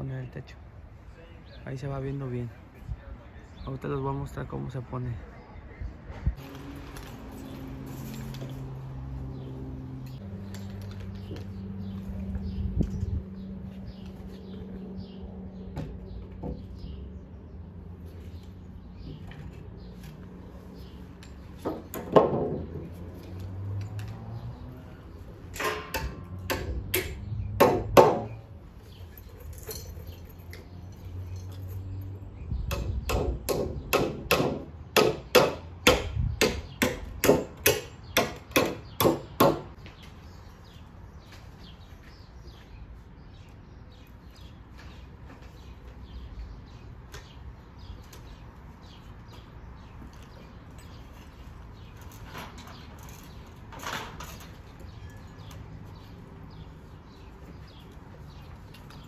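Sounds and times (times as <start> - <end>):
hammer striking wood: 21.6 - 22.8, 25.6 - 28.4, 32.7 - 39.7
wooden boards knocking: 21.6 - 22.8.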